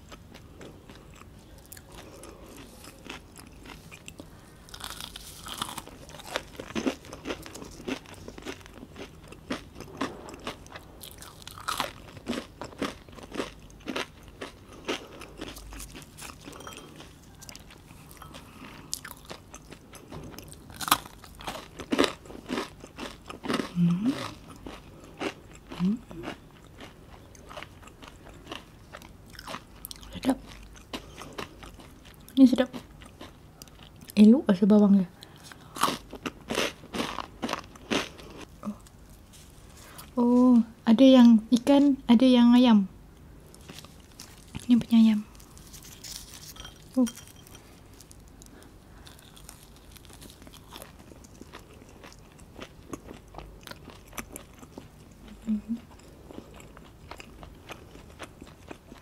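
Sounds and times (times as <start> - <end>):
crunching fried fish: 0.3 - 25.8, 43.5 - 55.0.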